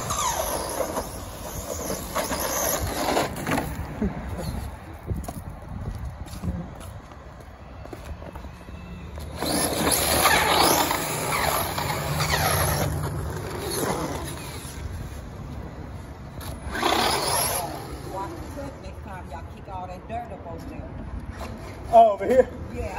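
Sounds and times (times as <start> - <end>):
toy truck motor whining: 0.0 - 3.7, 9.1 - 14.9, 16.4 - 18.2
tyre noise on dirt: 0.0 - 18.3.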